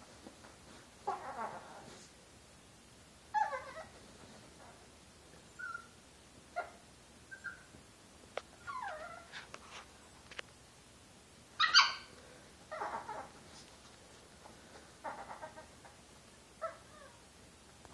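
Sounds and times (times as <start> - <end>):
dog whining and yipping: 1.0 - 2.0, 3.3 - 4.0, 5.5 - 6.0, 6.6 - 7.8, 8.6 - 9.4, 11.6 - 12.1, 12.7 - 13.4, 16.6 - 17.2.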